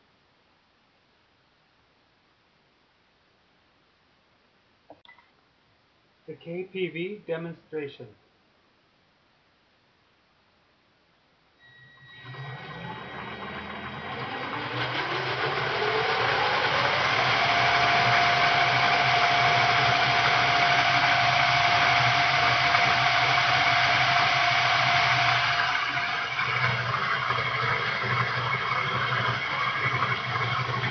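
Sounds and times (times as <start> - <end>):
electric motor whine: 11.6 - 30.9
low hum: 11.6 - 30.9
rushing mechanical noise: 11.6 - 30.9.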